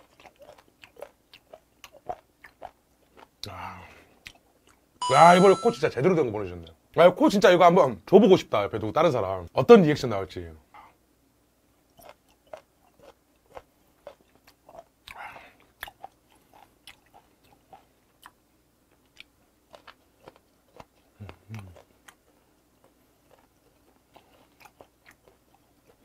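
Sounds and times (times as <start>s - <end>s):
crunchy chewing: 0.0s - 3.5s, 11.9s - 26.0s
person humming: 21.2s - 21.8s.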